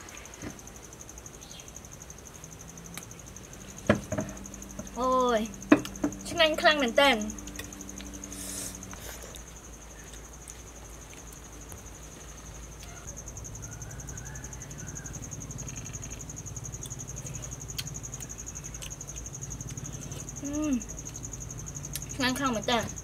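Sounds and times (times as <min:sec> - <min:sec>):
insects trilling: 0:00.0 - 0:23.0.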